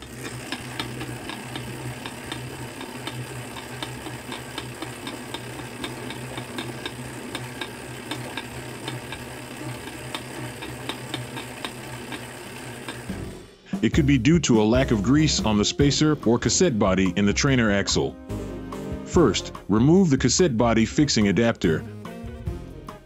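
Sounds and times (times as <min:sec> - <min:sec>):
bike trainer hum: 0:00.0 - 0:13.5.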